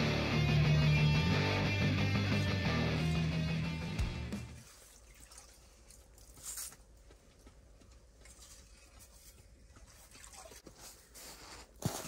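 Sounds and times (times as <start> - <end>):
water dripping: 4.0 - 6.5.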